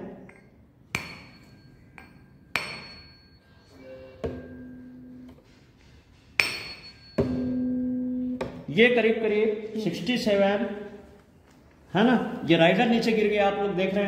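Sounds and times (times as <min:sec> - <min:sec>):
low steady hum: 0:00.0 - 0:09.8
tuning fork strike ringing: 0:01.2 - 0:05.4, 0:06.4 - 0:08.6.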